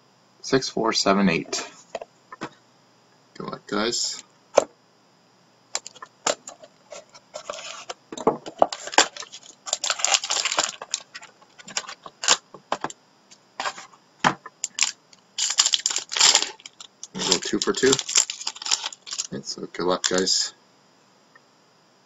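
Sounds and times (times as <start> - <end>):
box being opened and handled: 5.8 - 12.9, 13.6 - 14.0, 14.6 - 19.3
shrink wrap tearing and crinkling: 8.7 - 12.4, 14.6 - 19.4, 20.0 - 20.4.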